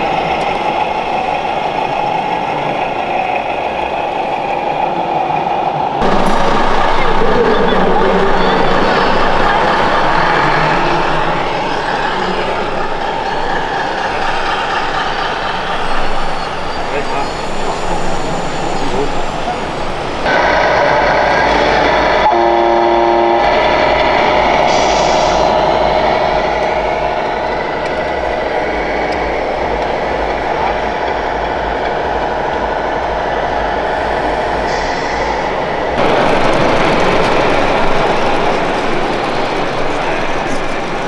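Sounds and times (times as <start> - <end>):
diesel engine running: 6.0 - 11.4, 20.3 - 35.0, 36.0 - 41.0
multi-tone air horn blast: 22.2 - 25.9.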